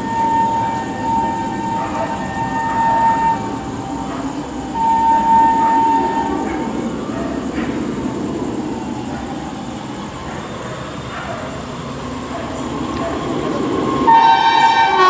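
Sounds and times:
train horn: 0.0 - 7.7, 13.9 - 15.0
train rumbling: 0.0 - 15.0.

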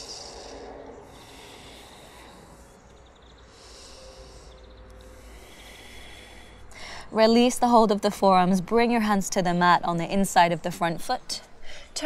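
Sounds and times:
slow breathing: 0.0 - 7.2, 11.4 - 12.0
low outdoor hum: 0.0 - 12.0.

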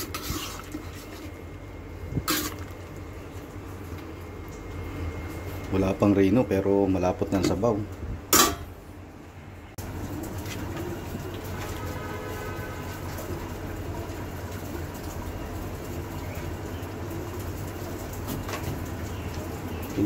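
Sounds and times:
stew simmering: 0.0 - 6.1.

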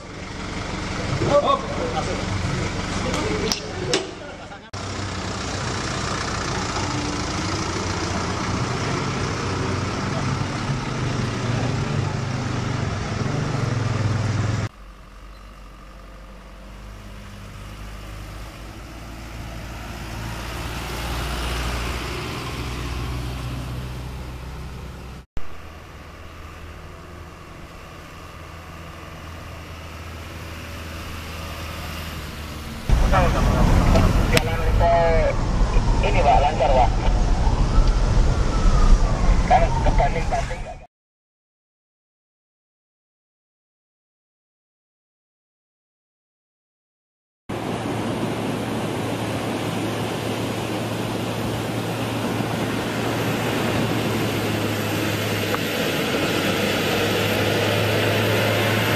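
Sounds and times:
truck engine running: 0.0 - 38.0.

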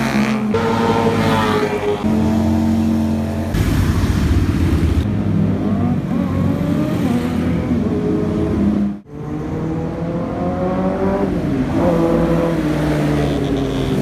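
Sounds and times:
motorcycle engines revving: 0.0 - 14.0.

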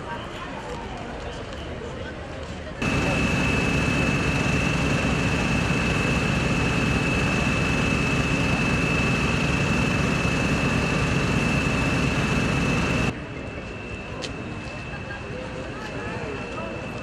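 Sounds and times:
engine running with high whine: 2.8 - 13.1.

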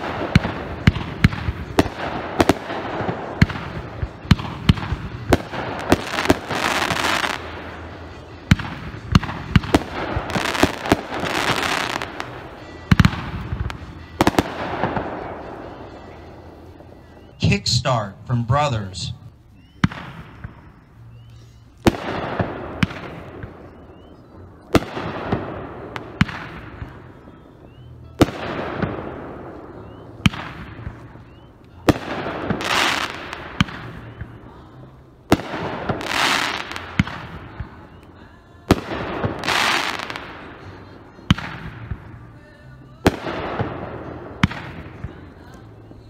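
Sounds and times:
firework crackling hiss: 31.9 - 46.0.

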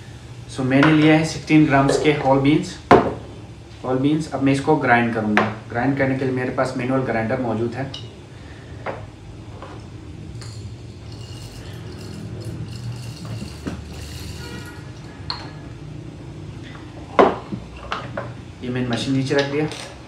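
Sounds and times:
manual coffee grinder grinding beans: 10.4 - 15.2.

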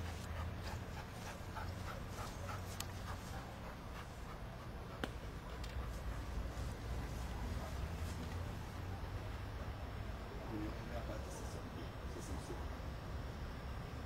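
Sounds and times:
dog panting: 0.0 - 8.5.

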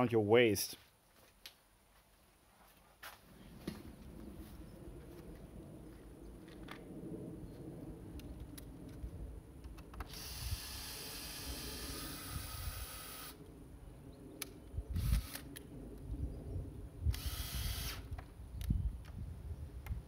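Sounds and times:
drill boring into wood: 10.1 - 13.4, 17.1 - 18.1.

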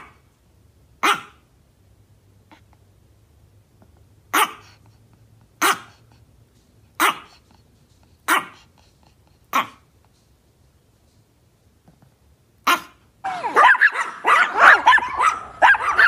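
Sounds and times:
small dog barking: 0.0 - 0.2, 1.0 - 1.5, 4.3 - 4.8, 5.6 - 6.0, 7.0 - 7.4, 8.2 - 8.7, 9.5 - 9.9, 12.6 - 16.0.

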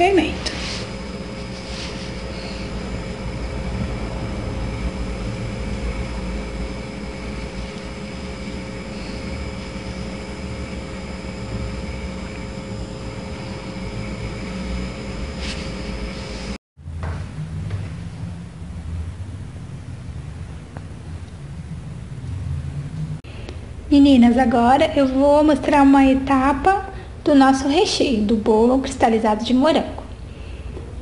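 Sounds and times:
faint whining tones: 0.0 - 16.6
machine hum with low rumble: 0.0 - 31.0.

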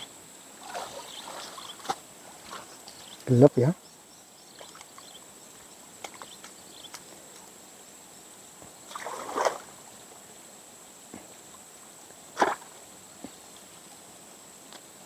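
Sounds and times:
splashes in shallow water: 0.6 - 2.9, 8.8 - 9.8, 12.3 - 12.8.

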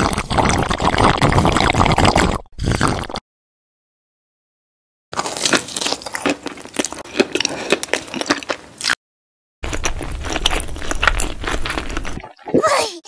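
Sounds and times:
crunchy biting and chewing: 5.2 - 9.0, 9.6 - 12.4.

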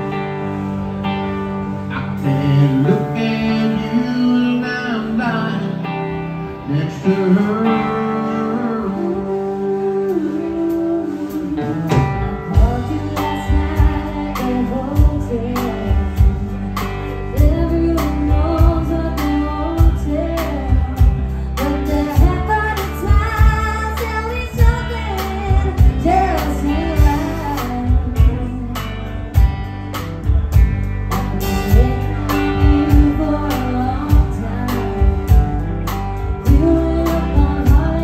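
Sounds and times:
live band playing: 0.0 - 38.0
woman singing: 6.9 - 29.4, 31.6 - 38.0
drum kit beat: 10.1 - 38.0.

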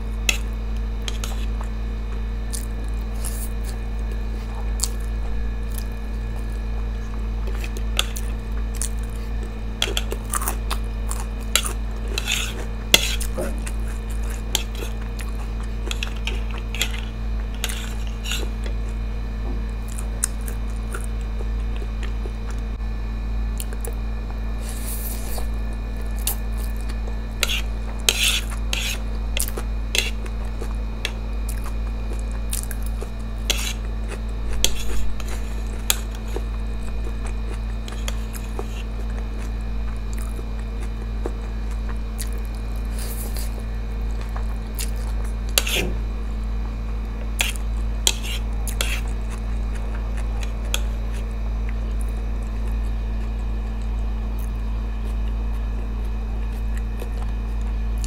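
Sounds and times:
steady low hum: 0.0 - 58.0
metal chopsticks scraping a plate: 11.5 - 13.3, 14.5 - 14.9, 15.9 - 18.7, 27.4 - 29.0, 33.5 - 33.8, 34.6 - 35.3, 47.4 - 49.1.

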